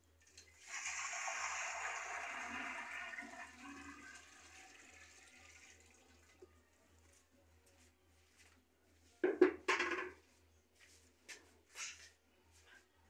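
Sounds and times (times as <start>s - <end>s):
water pouring into a pot: 0.2s - 6.5s.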